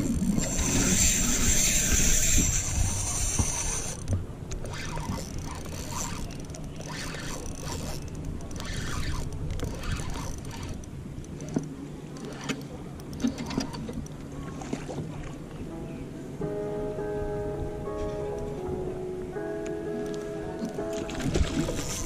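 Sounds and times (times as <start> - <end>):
wind on microphone: 0.0 - 6.3, 20.8 - 22.0
fishing reel gears whirring: 0.0 - 14.2, 21.6 - 22.0.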